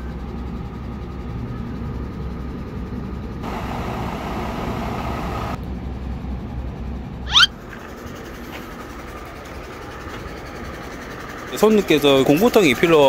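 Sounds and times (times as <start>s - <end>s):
diesel truck engine idling: 3.4s - 5.6s, 7.6s - 13.0s
hiss of noise: 3.4s - 5.6s.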